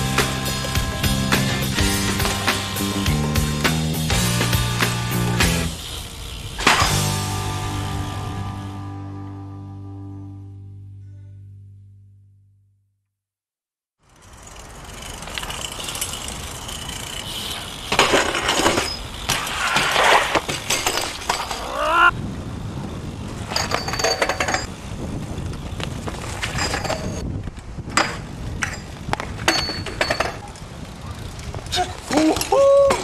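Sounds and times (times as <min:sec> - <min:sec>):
bike tyres rolling on concrete: 0:00.0 - 0:08.2, 0:14.0 - 0:33.0
bike crashing down: 0:06.5 - 0:07.2, 0:17.2 - 0:22.1, 0:26.0 - 0:27.2
metallic clanks of bikes landing: 0:06.5 - 0:07.2, 0:17.6 - 0:21.8, 0:23.4 - 0:24.7, 0:25.5 - 0:27.2, 0:27.9 - 0:30.6.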